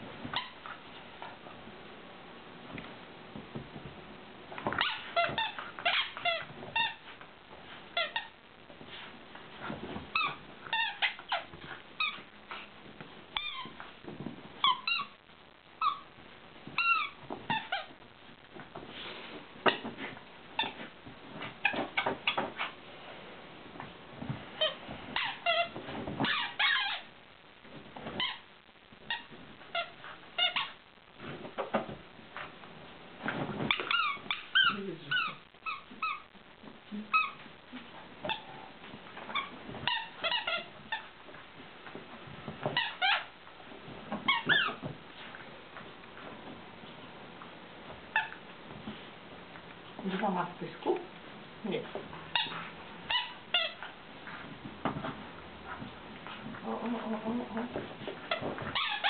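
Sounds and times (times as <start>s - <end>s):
rubber dog toys squeaking: 0.2s - 0.9s, 4.6s - 8.4s, 9.6s - 12.7s, 13.3s - 15.2s, 15.8s - 18.0s, 19.6s - 22.8s, 24.6s - 30.8s, 33.3s - 36.4s, 37.0s - 41.4s, 42.6s - 45.0s, 48.0s - 48.5s, 52.1s - 59.0s.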